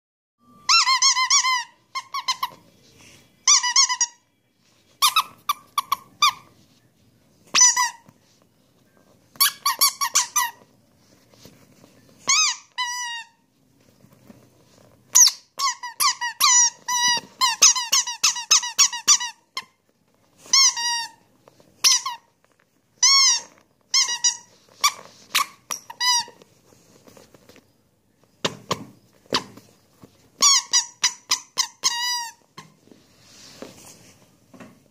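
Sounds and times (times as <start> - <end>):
squeaky rubber toys squeaking: 0.5 - 2.7, 3.4 - 4.3, 5.0 - 6.5, 7.5 - 8.2, 9.3 - 10.7, 12.2 - 13.5, 14.8 - 19.8, 20.4 - 26.5, 30.4 - 32.8.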